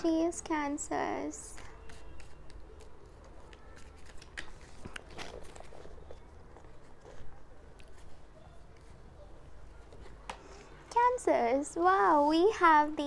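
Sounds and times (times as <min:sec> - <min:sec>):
cards shuffling: 0:01.5 - 0:09.0.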